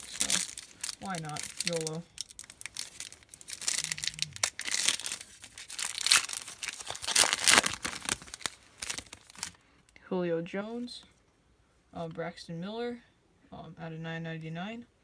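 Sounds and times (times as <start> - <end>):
card pack wrapper crinkling and tearing: 0.0 - 9.6.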